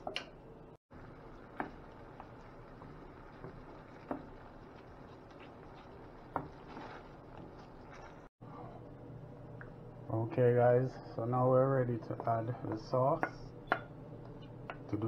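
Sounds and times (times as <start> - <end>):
spatula stirring thick sauce: 1.3 - 8.3.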